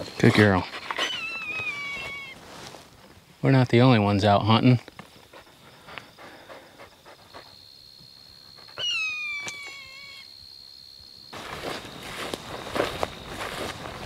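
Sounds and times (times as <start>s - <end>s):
footsteps swishing through dry grass: 0.9s - 3.3s, 11.4s - 14.0s
hawk screaming: 8.8s - 10.3s.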